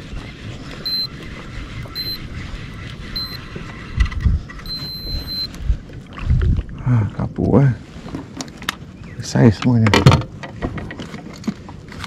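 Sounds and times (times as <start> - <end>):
electronic beeps: 0.8 - 1.2, 1.9 - 2.3, 3.1 - 3.5, 4.6 - 5.6.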